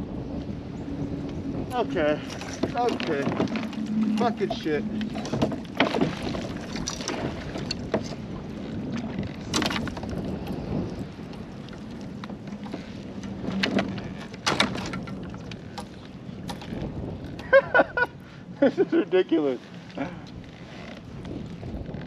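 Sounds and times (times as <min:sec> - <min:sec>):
wind and water rushing: 0:00.0 - 0:22.0.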